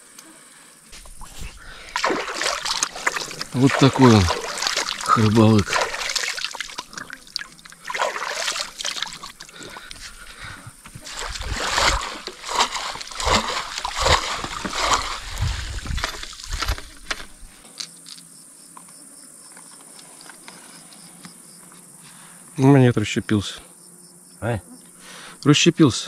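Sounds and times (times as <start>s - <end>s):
insects chirring: 0.0s - 26.0s
pole swishing through water: 1.0s - 9.7s, 10.9s - 17.5s
hands splashing in water: 1.0s - 10.0s, 10.9s - 17.5s.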